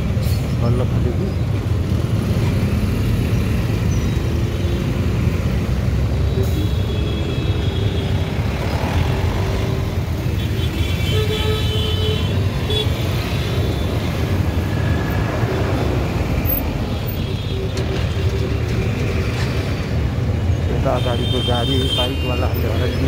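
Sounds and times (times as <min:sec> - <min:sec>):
vehicle horns tooting: 0:10.3 - 0:13.9, 0:20.8 - 0:23.0.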